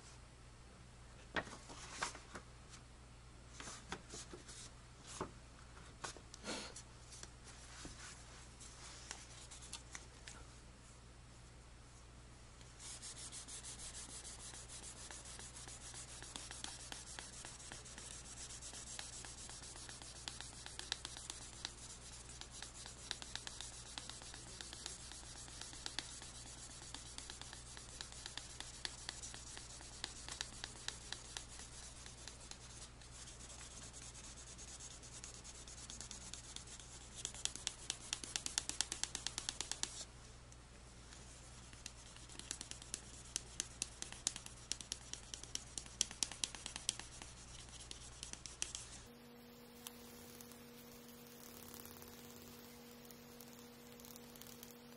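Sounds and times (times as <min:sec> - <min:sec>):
sandpaper scratching wood: 0:12.8 - 0:39.9, 0:41.9 - 0:54.9.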